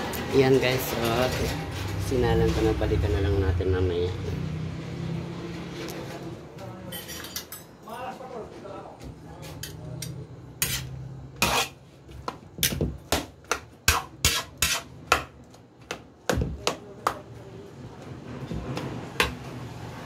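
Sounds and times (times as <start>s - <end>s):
metal ladle scraping a wok: 10.6s - 11.8s.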